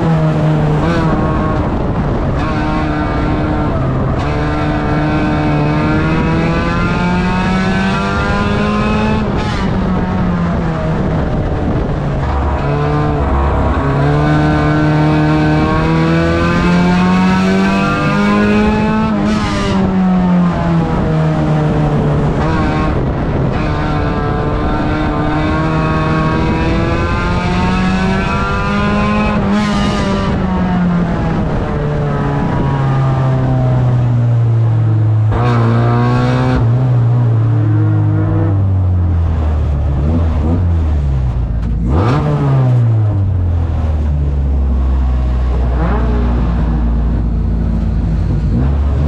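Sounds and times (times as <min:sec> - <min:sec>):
race car engine revving: 0:00.0 - 0:49.0.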